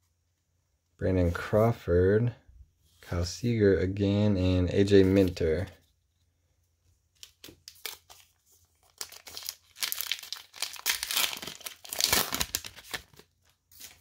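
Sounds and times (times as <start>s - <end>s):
card pack wrapper tearing and crinkling: 7.2s - 14.0s.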